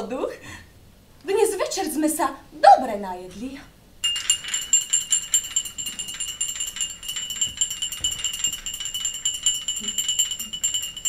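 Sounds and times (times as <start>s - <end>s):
high ringing tone with metallic rattle: 4.0s - 11.0s.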